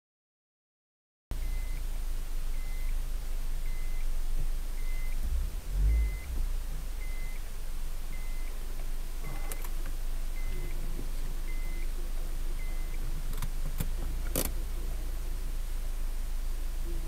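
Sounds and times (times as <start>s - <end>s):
low rumble: 1.3s - 17.0s
turn signal beeping: 1.4s - 1.9s, 2.5s - 3.0s, 3.6s - 4.1s, 4.7s - 7.5s, 8.1s - 9.8s, 10.4s - 12.0s, 12.6s - 14.5s.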